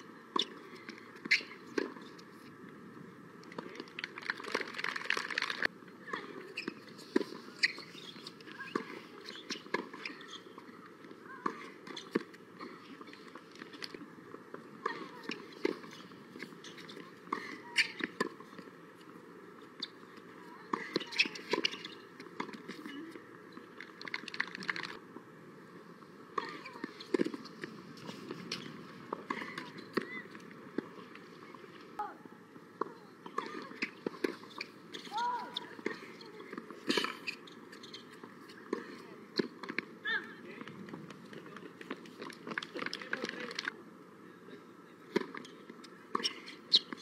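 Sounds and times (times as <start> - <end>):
steady outdoor hiss: 0.0 - 47.0
players' footsteps: 3.4 - 5.7.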